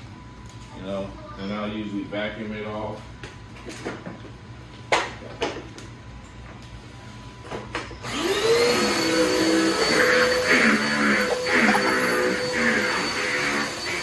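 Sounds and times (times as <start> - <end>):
vacuum cleaner motor whining: 8.0 - 14.0.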